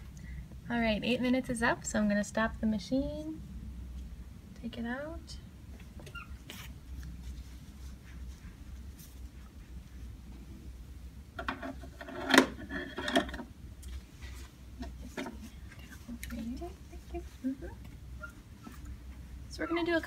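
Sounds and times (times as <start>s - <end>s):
low room hum: 0.0s - 20.0s
rustling: 5.7s - 10.7s.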